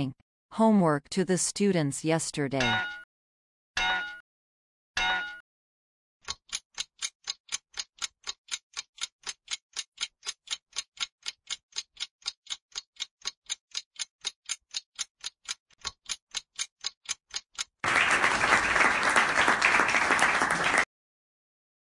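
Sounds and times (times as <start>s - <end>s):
fast clock ticks: 2.6s - 3.0s, 6.2s - 17.8s
applause sound effect: 17.8s - 20.9s.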